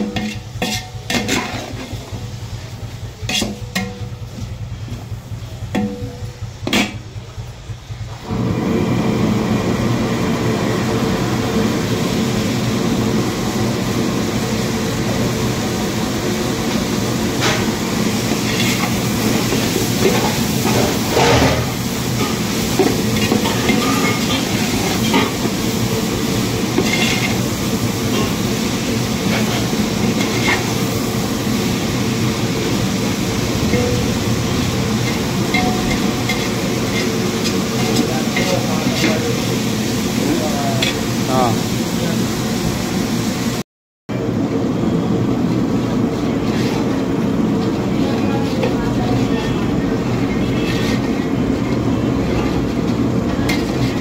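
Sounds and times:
spatula scraping metal pot: 0:00.0 - 0:02.0, 0:03.2 - 0:04.0, 0:26.8 - 0:27.4, 0:35.1 - 0:39.2, 0:50.2 - 0:54.0
loud rumbling hum: 0:00.0 - 0:42.6.

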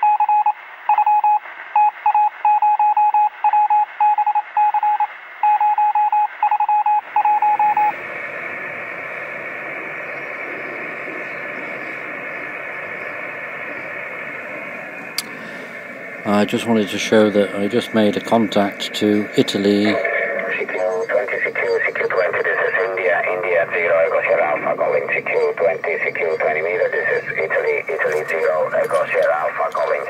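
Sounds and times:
morse code tone: 0:00.0 - 0:08.0
radio receiver hiss: 0:07.0 - 0:30.0.

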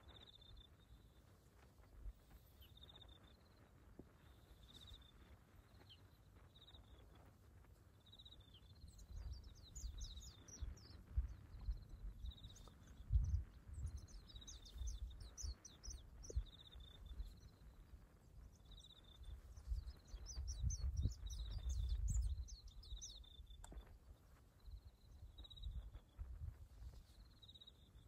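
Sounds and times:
birds chirping and trilling: 0:08.4 - 0:17.7.

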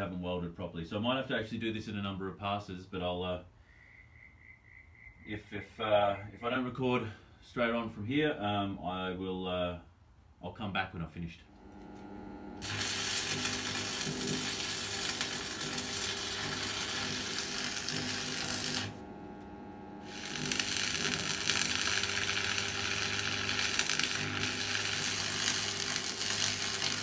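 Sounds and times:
steady low hum: 0:11.2 - 0:26.8
arc welder crackling: 0:11.6 - 0:27.0.

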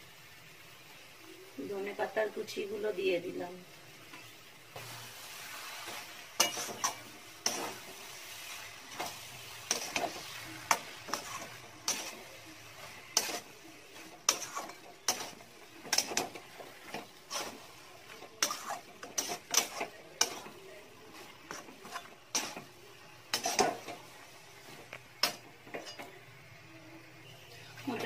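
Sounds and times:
faint sizzle: 0:00.0 - 0:28.0
spatula scraping a metal pot: 0:04.8 - 0:20.6, 0:21.2 - 0:22.7, 0:23.3 - 0:24.1.

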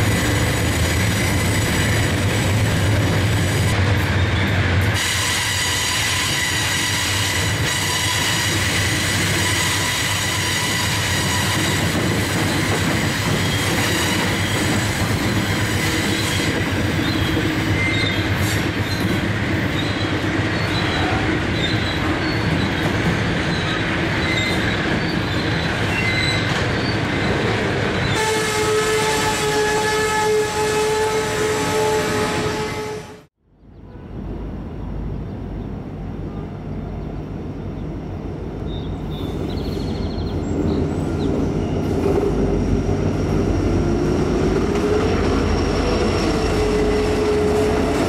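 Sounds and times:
freight train cars rumbling: 0:00.0 - 0:48.0
high wheel squeal: 0:04.2 - 0:12.0, 0:23.5 - 0:27.0.

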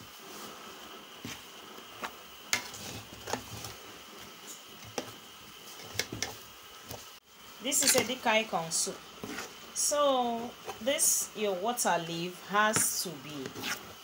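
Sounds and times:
faint steady hiss: 0:00.0 - 0:14.0
metal spatula scraping metal pot: 0:07.8 - 0:08.2.

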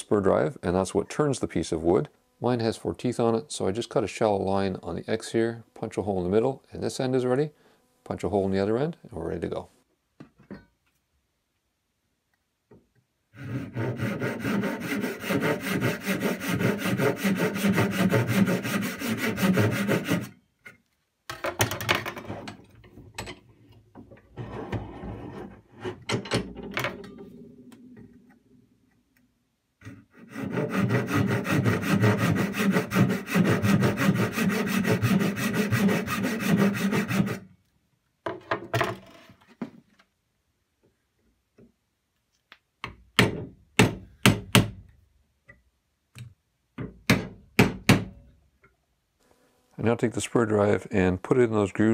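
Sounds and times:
saw cutting wood: 0:13.4 - 0:20.3, 0:29.9 - 0:37.4.

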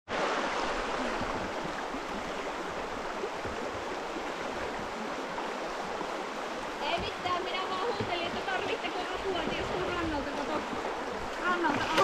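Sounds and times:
river rapids rushing: 0:00.1 - 0:12.0.

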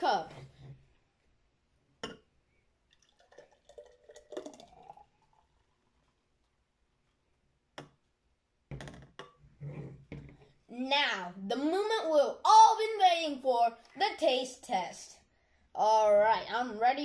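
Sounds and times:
smoothie gurgling into glass: 0:02.9 - 0:06.2.

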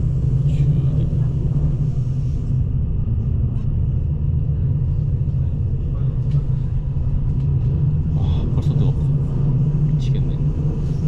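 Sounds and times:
train wheels rumbling on rails: 0:00.0 - 0:11.0.

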